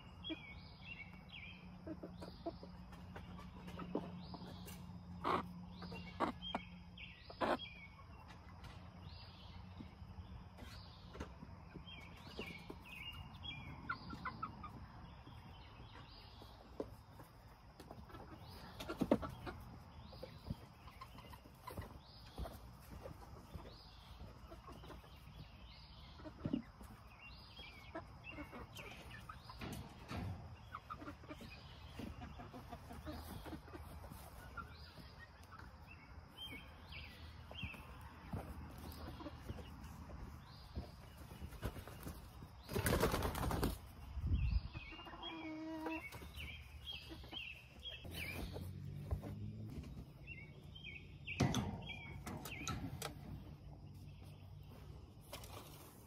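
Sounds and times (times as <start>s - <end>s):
chicken flapping wings: 41.5s - 43.9s.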